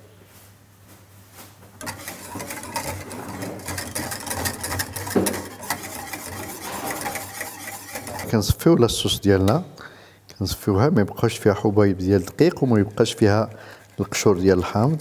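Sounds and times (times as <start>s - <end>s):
whisk scraping a metal pan: 1.8s - 9.5s, 11.1s - 15.0s.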